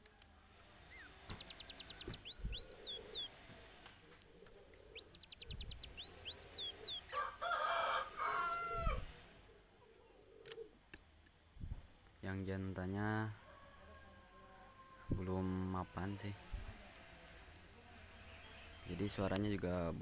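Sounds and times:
songbird chirps and whistles: 0.9 - 3.3, 4.9 - 7.2
rooster crowing: 6.6 - 9.1, 13.4 - 16.3.

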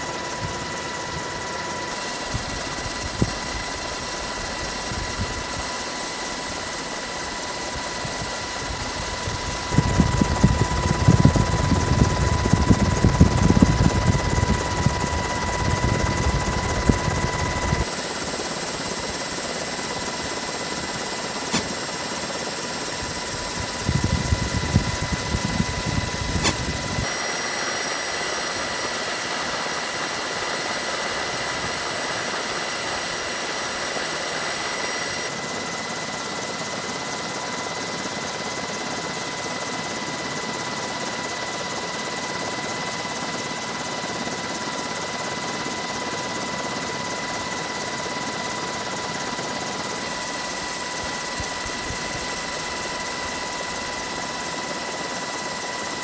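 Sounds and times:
helicopter cabin noise: 0.0 - 27.5.

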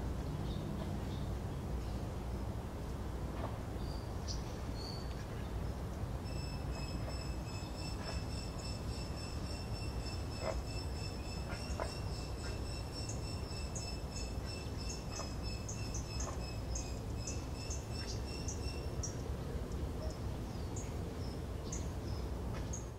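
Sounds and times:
steady high-pitched tone: 6.2 - 19.0.

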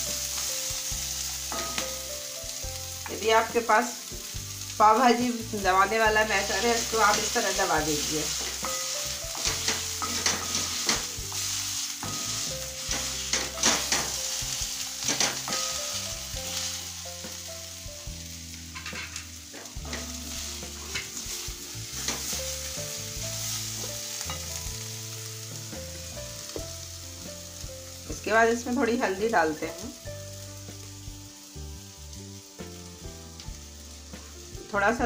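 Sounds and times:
food sizzling in oil: 0.0 - 35.0
utensil scraping and knocking pan: 8.4 - 11.1, 18.7 - 21.3.

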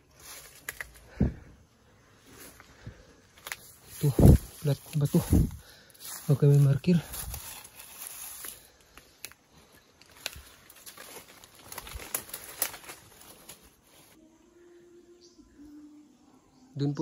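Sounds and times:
dry leaves rustling and crackling: 0.0 - 1.2, 2.3 - 14.2
twigs snapping: 0.2 - 1.2, 3.3 - 14.0.

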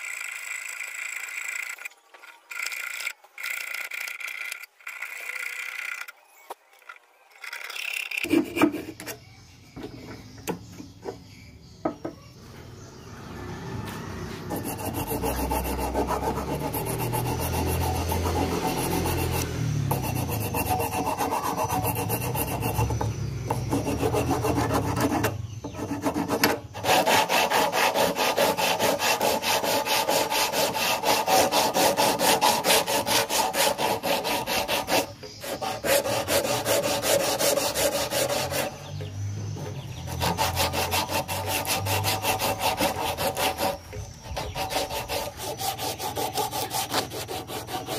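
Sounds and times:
sandpaper scraping wood: 13.9 - 47.9.

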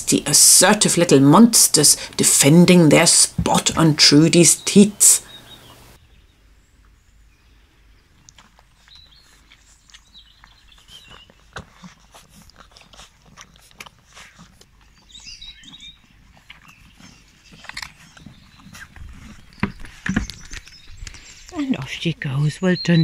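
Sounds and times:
puppies suckling smacking: 8.1 - 22.0.

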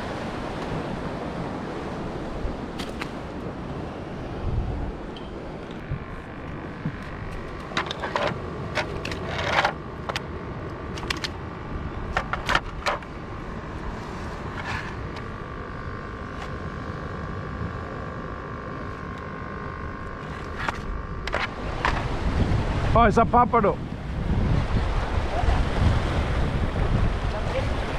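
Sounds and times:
wind noise on microphone: 3.4 - 5.1, 5.7 - 8.2, 20.7 - 27.9
plastic fishing gear clicking: 10.9 - 11.4.

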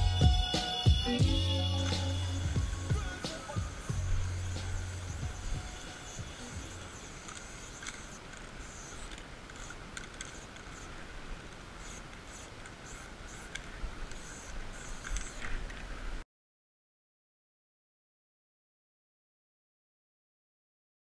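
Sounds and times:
spray paint can hissing: 1.2 - 10.9, 11.8 - 15.5.

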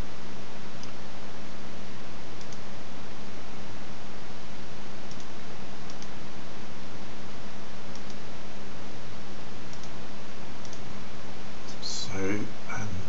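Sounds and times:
steady hiss and low hum: 0.0 - 13.0
computer mouse clicking: 2.4 - 2.7, 5.1 - 5.3, 5.9 - 6.2, 7.9 - 8.2, 9.7 - 10.0, 10.6 - 10.9.

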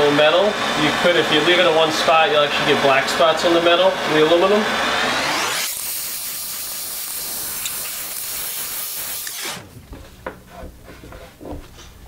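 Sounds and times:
propane torch hissing: 5.6 - 9.6.

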